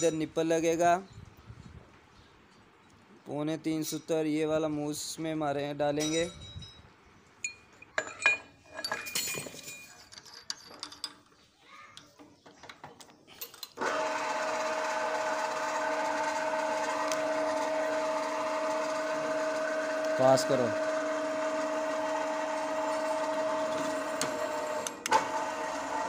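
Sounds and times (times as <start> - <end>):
hand tools clicking and knocking: 7.4 - 11.4
drill press motor whining: 13.8 - 26.0.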